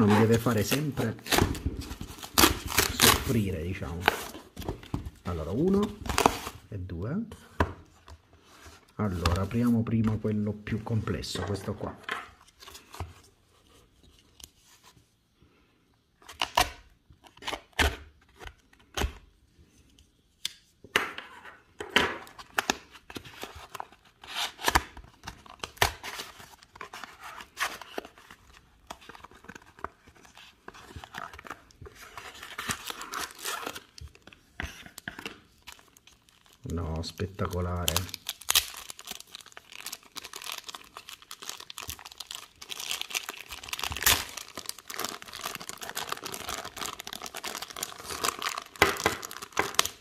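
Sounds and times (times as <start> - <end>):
plastic bag crinkling: 35.6 - 50.0.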